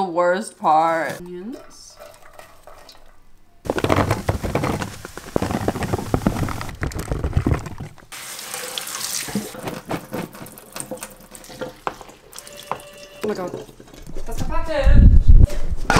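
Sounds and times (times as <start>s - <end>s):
mushrooms knocking in colander: 3.7s - 8.0s
tap water running: 8.1s - 9.6s.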